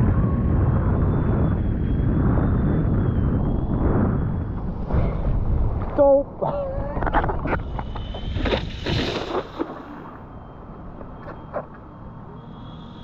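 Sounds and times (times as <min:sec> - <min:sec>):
wind buffeting microphone: 0:00.0 - 0:12.2
faint high whine: 0:07.0 - 0:13.0.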